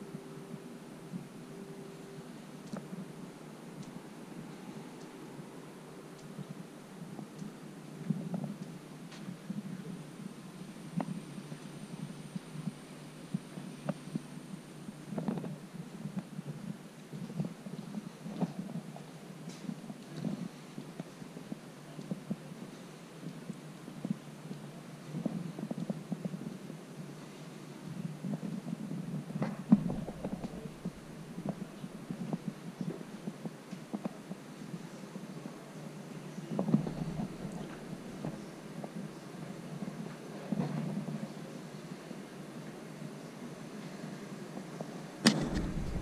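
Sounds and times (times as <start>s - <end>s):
low hum: 0.0s - 15.2s, 29.6s - 32.5s, 36.6s - 38.8s, 45.3s - 46.0s
muffled footsteps: 29.4s - 33.1s, 36.5s - 38.6s, 45.2s - 46.0s
camera handling rumble: 29.5s - 32.4s, 45.2s - 46.0s.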